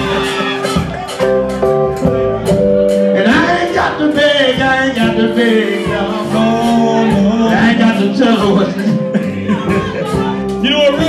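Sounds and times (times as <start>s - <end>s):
blues band playing: 0.0s - 11.0s
men singing into microphones: 3.2s - 11.0s.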